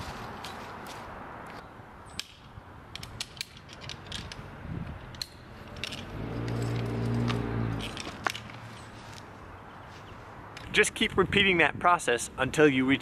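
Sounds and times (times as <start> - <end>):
metal climbing hardware clinking: 2.1 - 8.9.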